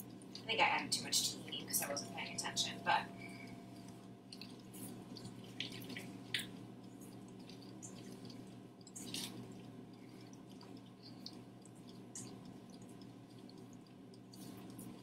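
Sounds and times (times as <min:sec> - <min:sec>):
steady low hum: 0:00.0 - 0:15.0
spatula stirring wet dip in bowl: 0:04.3 - 0:15.0.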